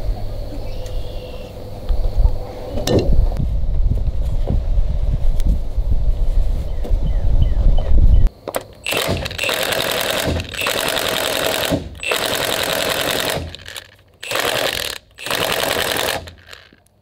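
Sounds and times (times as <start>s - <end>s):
impact driver hammering: 8.6s - 16.8s.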